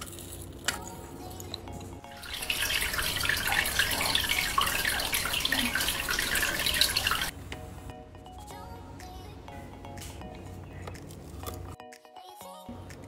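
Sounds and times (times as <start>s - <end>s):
water stream splashing into sink: 2.2s - 7.3s.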